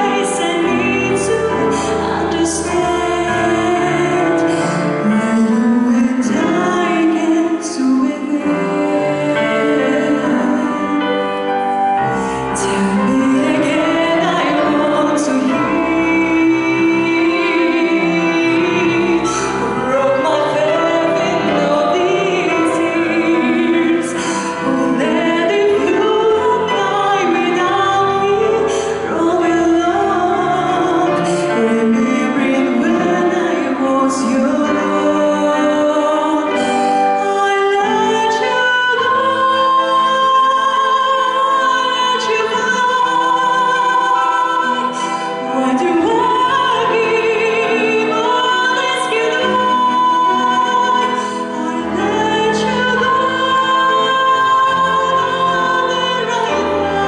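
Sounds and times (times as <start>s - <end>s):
grand piano accompaniment: 0.0s - 57.0s
woman singing with vibrato: 0.0s - 57.0s.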